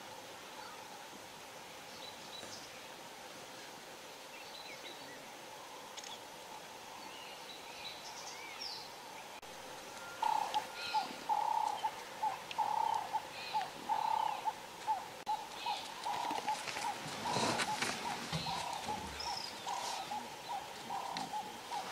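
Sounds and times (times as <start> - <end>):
faint bird chirps: 6.9 - 21.9
mellow hooting calls: 9.9 - 21.9.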